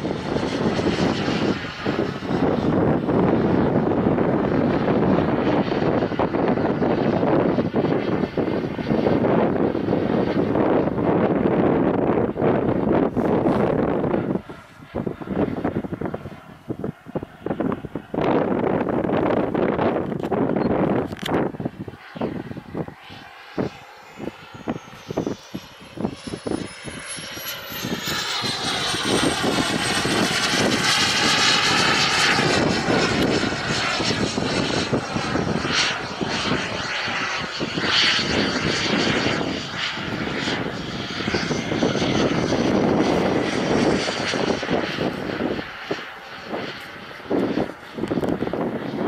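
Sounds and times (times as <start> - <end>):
jet turbine rush and whine: 0.0 - 49.0
wind knocking on microphone: 41.3 - 49.0.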